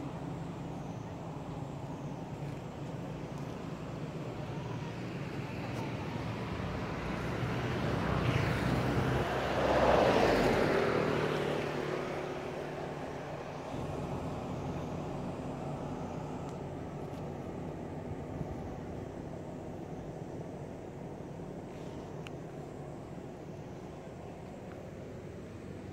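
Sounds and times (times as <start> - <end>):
motor vehicle passing: 6.8 - 16.5.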